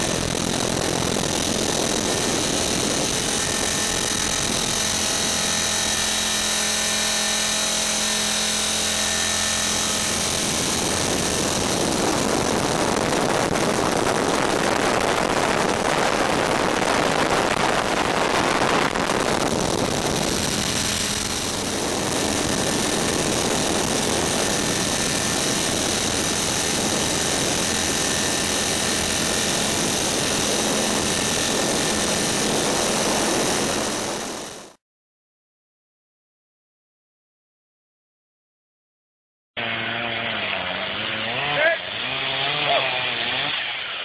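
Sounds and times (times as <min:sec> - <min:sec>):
wind rush: 0:00.0 - 0:06.3, 0:09.0 - 0:34.8
model aircraft motor roar: 0:00.0 - 0:34.8, 0:39.6 - 0:44.0.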